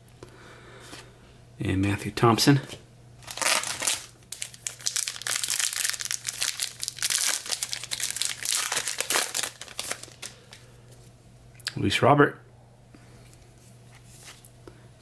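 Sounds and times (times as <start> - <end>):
wrapper crinkling and tearing: 3.2 - 10.7.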